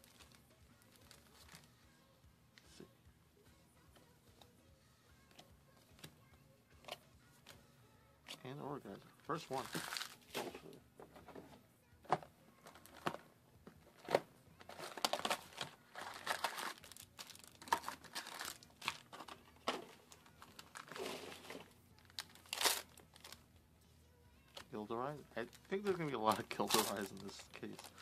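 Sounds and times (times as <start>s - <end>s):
wrapper crinkling and tearing: 0.0s - 1.7s, 9.4s - 10.4s, 14.0s - 23.4s, 24.5s - 28.0s.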